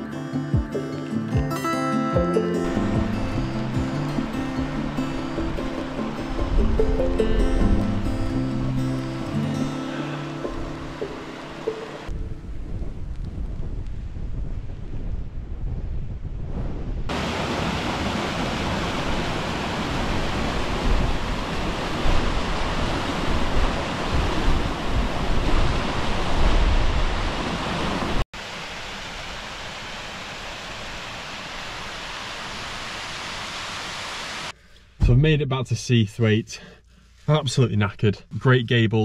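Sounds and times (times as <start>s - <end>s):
waterfall rushing over rocks: 2.6s - 12.1s, 17.1s - 34.6s
wind gusts on microphone: 10.5s - 28.2s.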